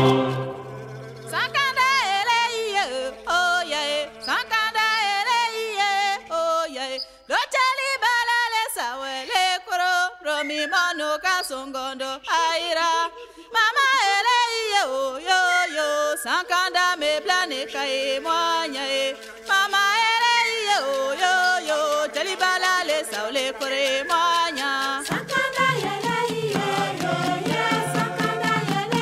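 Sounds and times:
steady held drone: 0.0s - 2.4s
person singing ornamented melody: 0.0s - 29.0s.

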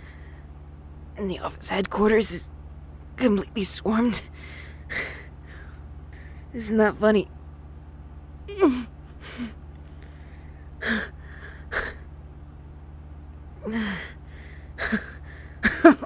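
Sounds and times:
woman groaning: 8.5s - 9.6s, 13.6s - 14.2s, 14.8s - 16.0s.

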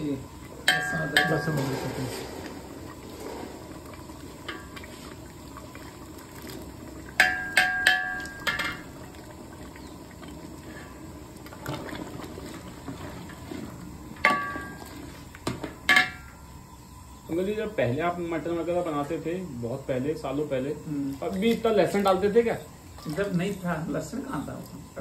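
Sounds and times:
curry simmering in a pot: 0.0s - 25.0s
steel ladle clanking on jar: 0.7s - 2.0s
ladle stirring thick curry: 9.2s - 15.4s.

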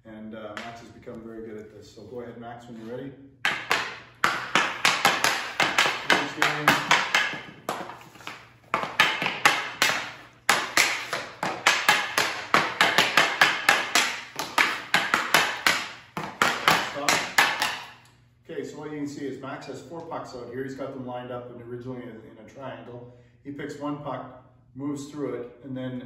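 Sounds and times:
hockey stick clacking pucks on concrete: 3.4s - 18.1s.

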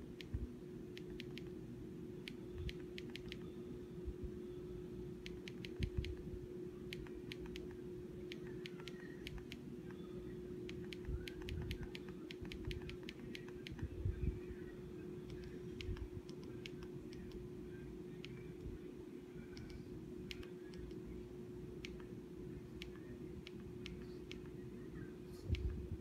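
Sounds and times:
faint steady hum: 0.0s - 26.0s
remote buttons clicking: 0.1s - 1.6s, 2.2s - 3.6s, 5.2s - 6.2s, 6.9s - 10.0s, 10.6s - 13.9s, 15.2s - 17.5s, 19.4s - 21.2s, 21.8s - 24.6s.

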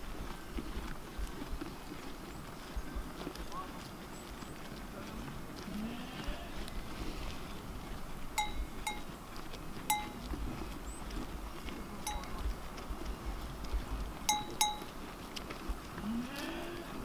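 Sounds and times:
sheep bell clanking: 8.4s - 9.2s, 9.9s - 10.3s, 12.0s - 12.4s, 14.3s - 15.0s.

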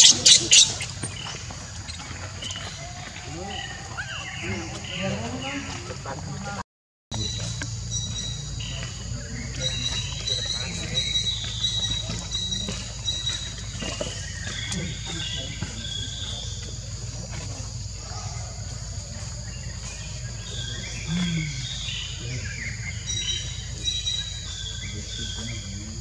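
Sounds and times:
birds chirping: 0.0s - 26.0s
insect drone: 0.0s - 26.0s.

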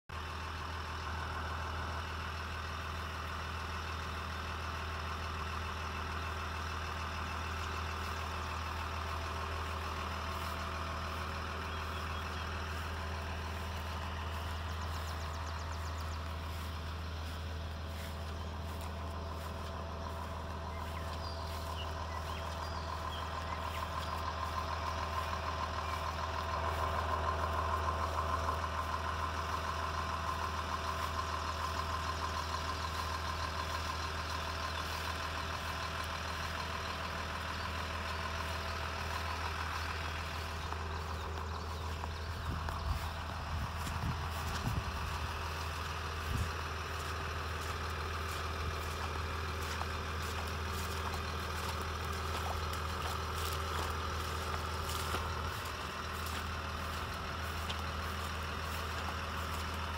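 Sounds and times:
tractor diesel engine idling: 0.1s - 59.9s.

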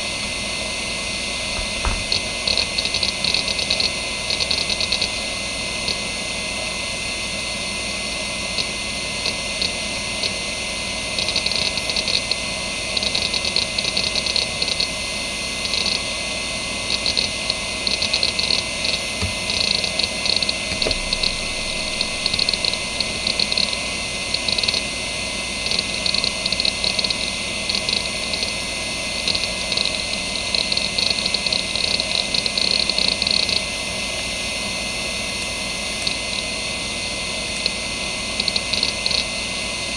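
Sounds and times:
hard drive spinning whine: 0.0s - 39.9s
hard drive heads clicking: 17.9s - 24.8s.

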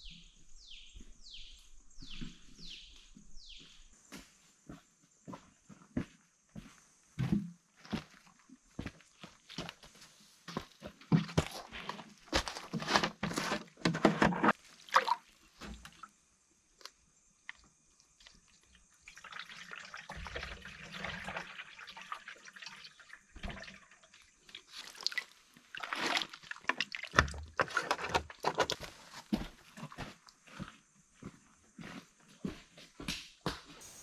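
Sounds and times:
water sloshing and pouring: 12.7s - 16.1s, 17.5s - 29.0s.

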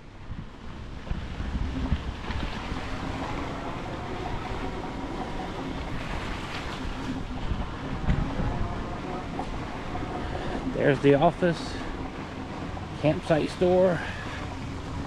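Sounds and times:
wind rush on microphone: 0.0s - 15.0s
low thumps: 1.0s - 13.0s.

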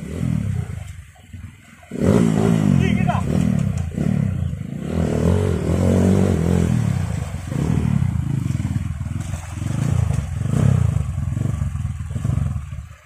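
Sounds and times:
dirt bike engine revving: 0.0s - 13.0s
river water rushing: 4.8s - 13.0s.

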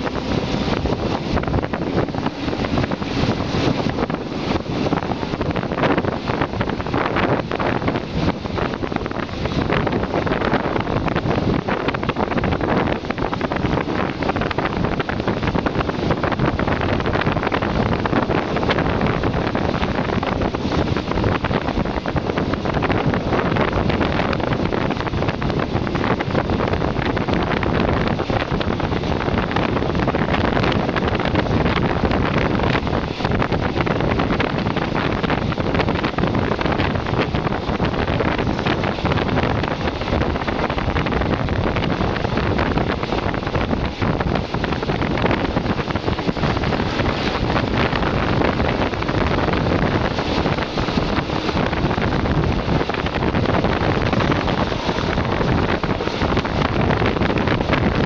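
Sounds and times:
train running noise: 0.0s - 58.0s
wind rushing over microphone: 0.0s - 58.0s.

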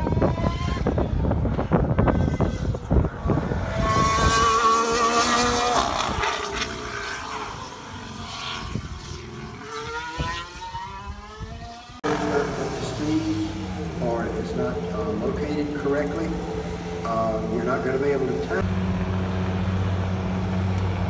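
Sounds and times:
wind buffeting microphone: 0.0s - 7.7s, 8.4s - 13.8s
race car engine passing: 0.0s - 21.0s.

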